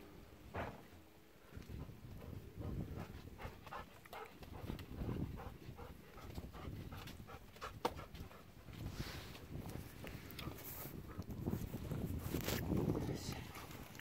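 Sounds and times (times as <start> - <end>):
dogs panting: 1.6 - 11.5, 13.3 - 14.0.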